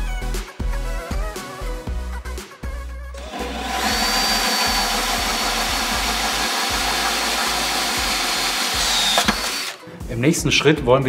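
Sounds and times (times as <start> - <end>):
background music with a beat: 0.0 - 11.0
drill grinding with high whine: 3.2 - 9.8.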